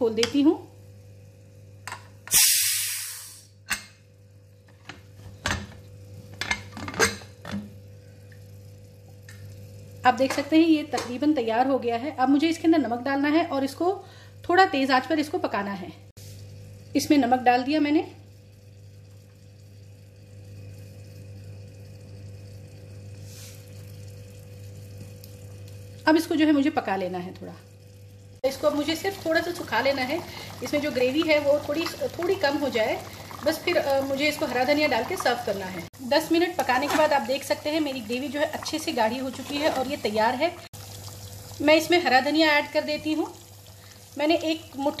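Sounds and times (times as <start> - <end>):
pressure cooker steam hiss: 2.2 - 3.6
curry bubbling in a pot: 16.3 - 45.0.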